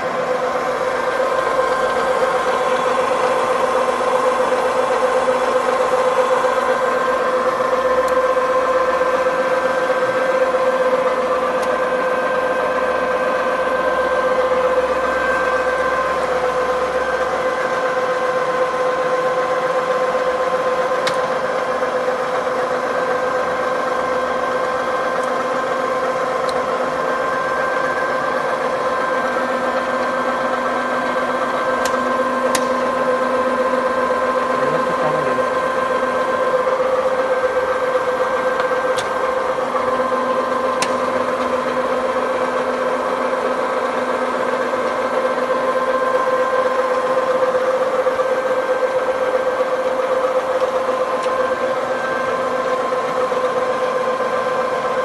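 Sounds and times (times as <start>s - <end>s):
milling machine humming: 0.0s - 55.0s.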